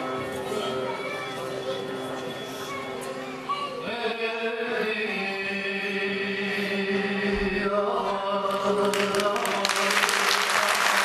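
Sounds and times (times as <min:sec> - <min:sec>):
audience applause: 0:08.9 - 0:11.0.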